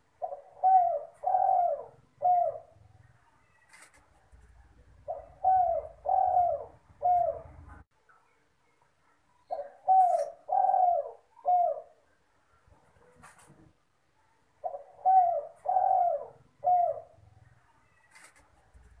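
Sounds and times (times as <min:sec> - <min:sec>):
dove cooing: 0:00.0 - 0:03.1, 0:04.8 - 0:07.8, 0:09.5 - 0:12.2, 0:14.6 - 0:17.3.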